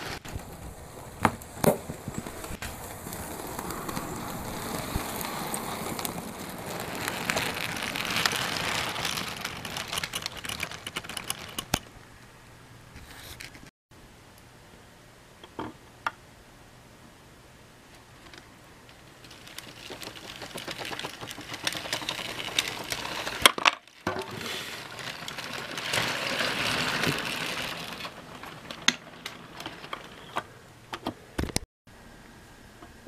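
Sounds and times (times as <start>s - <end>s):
wheels rattling on rail: 19.2s - 23.4s.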